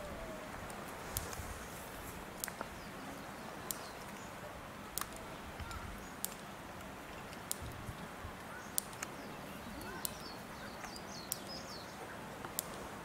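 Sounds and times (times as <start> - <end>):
steady outdoor hiss: 0.0 - 13.0
faint bird chirp: 2.6 - 4.6, 7.0 - 12.2.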